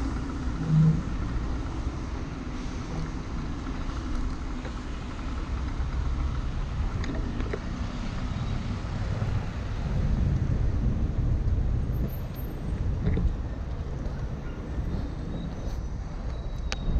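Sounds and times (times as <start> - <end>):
cars passing on wet road: 0.0 - 15.8
wind rumble on microphone: 5.4 - 16.9.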